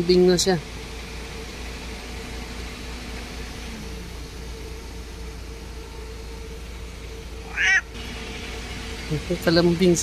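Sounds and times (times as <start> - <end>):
faint steady hum: 0.0 - 9.9
low rumble and hiss: 3.8 - 10.0.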